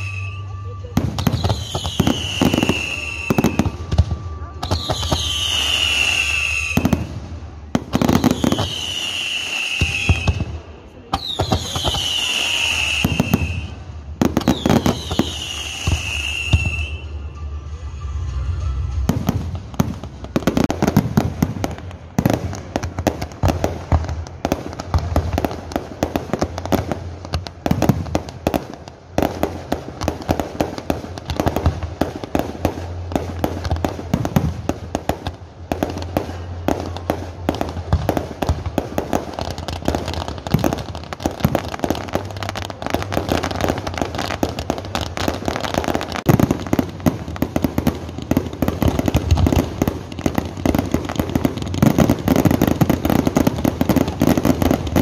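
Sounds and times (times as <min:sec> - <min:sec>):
falling firework whistles: 0:00.0 - 0:07.2, 0:07.9 - 0:19.8
firework bangs and crackle: 0:00.0 - 0:55.0.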